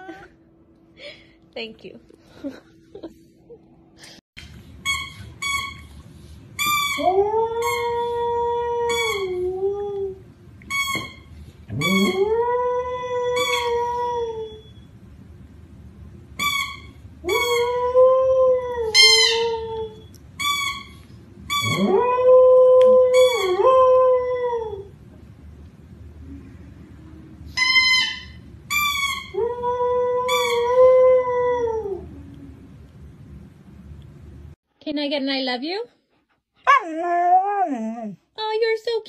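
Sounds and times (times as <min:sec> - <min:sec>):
dog howling: 0:36.7 - 0:38.2.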